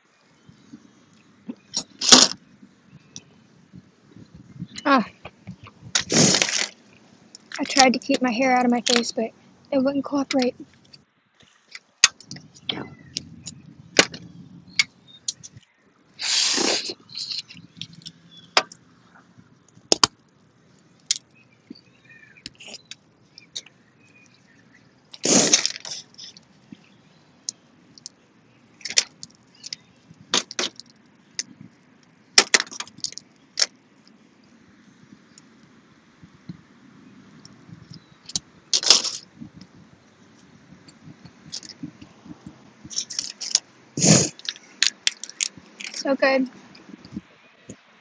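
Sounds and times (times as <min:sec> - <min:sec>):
slurping eating sounds: 0:06.0 - 0:06.7, 0:16.2 - 0:18.0
crawfish shells snapping: 0:19.8 - 0:20.2, 0:28.8 - 0:33.8, 0:44.3 - 0:46.0.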